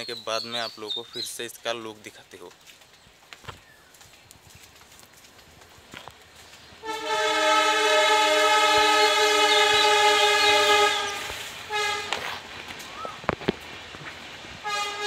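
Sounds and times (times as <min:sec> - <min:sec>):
horn blasts: 0:06.8 - 0:12.5, 0:14.6 - 0:15.0.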